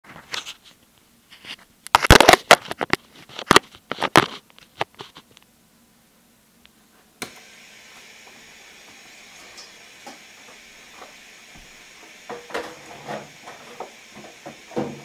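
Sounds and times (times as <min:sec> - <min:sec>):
camera handling rustling: 0:01.4 - 0:05.4.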